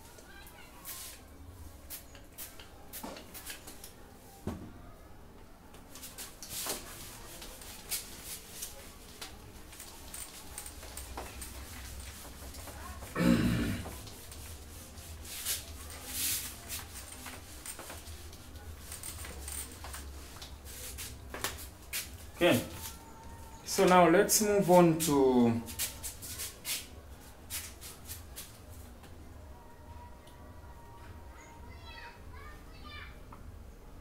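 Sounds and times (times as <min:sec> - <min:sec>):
eraser wiping whiteboard: 0:14.0 - 0:17.6.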